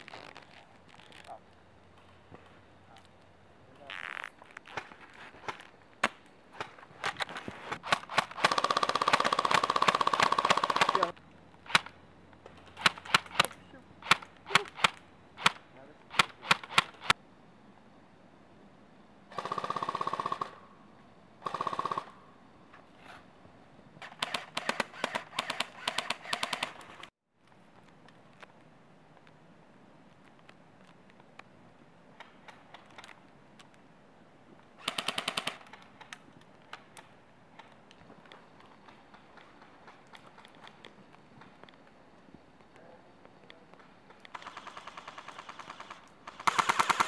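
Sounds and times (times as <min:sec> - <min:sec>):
airsoft rifle full-auto bursts: 0:07.8 - 0:11.9, 0:12.8 - 0:17.2, 0:19.3 - 0:20.6, 0:21.4 - 0:22.2, 0:24.0 - 0:27.1, 0:34.8 - 0:35.8, 0:44.3 - 0:47.0
airsoft gun single shots: 0:12.8 - 0:17.2.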